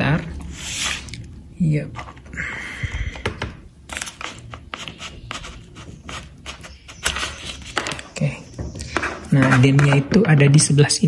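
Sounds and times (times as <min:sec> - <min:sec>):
laptop scraping on table: 0:08.9 - 0:10.3.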